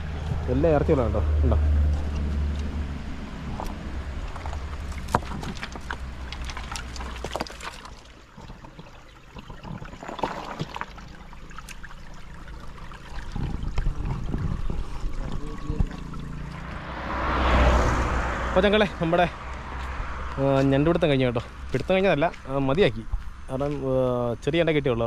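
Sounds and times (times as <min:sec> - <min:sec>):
stream trickling over rocks: 0:00.0 - 0:24.8
stones clicking and knocking: 0:03.6 - 0:10.8.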